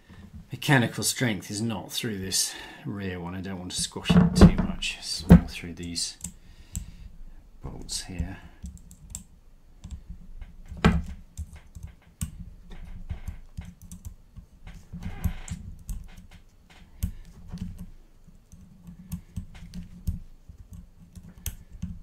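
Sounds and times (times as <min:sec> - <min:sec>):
light clicks and knocks of handling: 0:07.6 - 0:22.0.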